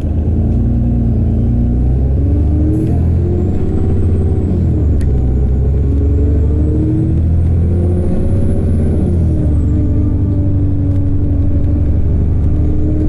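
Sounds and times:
bus diesel engine pulling: 0.0 - 13.0.

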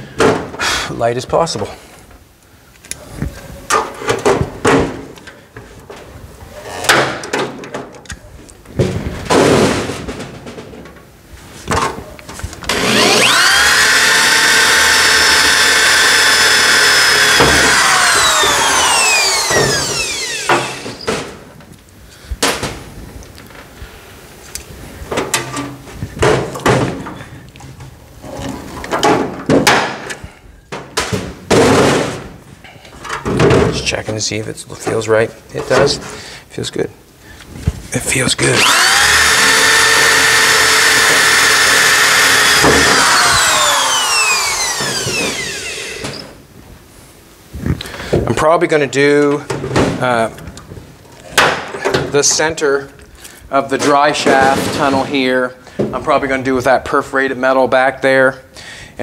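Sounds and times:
cordless drill whine: 12.7 - 21.1, 38.5 - 46.4.

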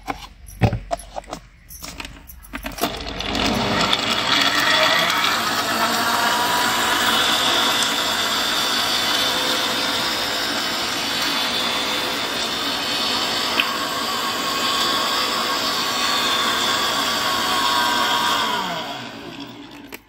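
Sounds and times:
mixer grinder whine: 0.1 - 20.0
liquid churning: 2.8 - 14.4.

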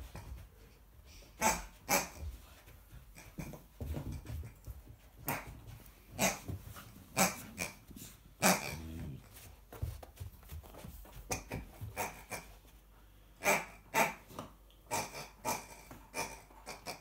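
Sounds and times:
puppy growling: 8.4 - 9.3.

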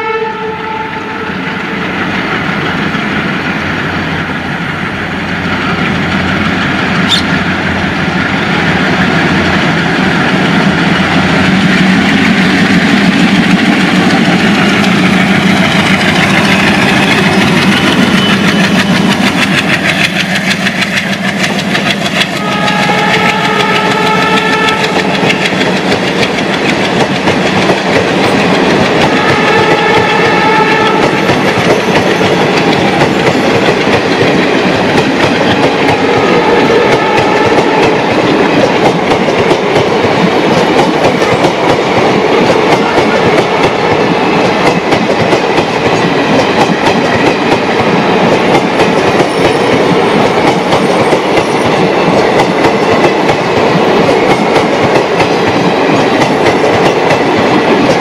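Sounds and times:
train horn: 0.0 - 1.8, 22.3 - 25.5, 29.0 - 31.4, 36.0 - 38.2
diesel locomotives pulling away: 0.0 - 58.0
train wheels clattering over rail joints: 8.2 - 58.0.

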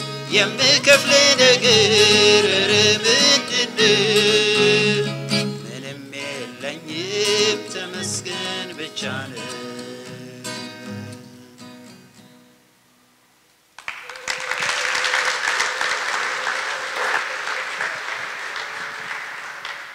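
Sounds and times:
acoustic guitar strumming: 0.0 - 13.2
audience applauding: 13.8 - 19.9.

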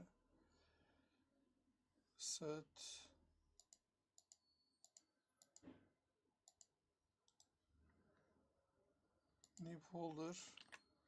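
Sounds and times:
computer mouse clicks: 3.6 - 5.7, 6.4 - 7.6, 9.4 - 10.8.

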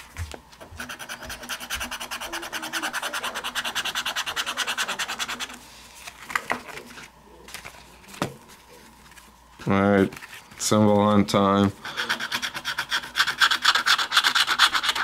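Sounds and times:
scratching lottery ticket: 0.8 - 9.3, 11.8 - 15.0.

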